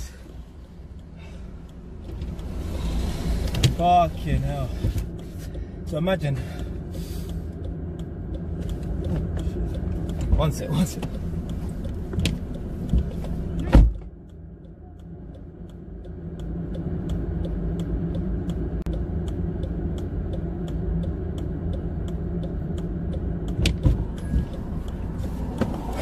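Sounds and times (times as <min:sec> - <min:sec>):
low vehicle rumble: 0:00.0 - 0:26.0
car door shutting: 0:13.6 - 0:14.1, 0:23.6 - 0:24.5, 0:25.3 - 0:26.0.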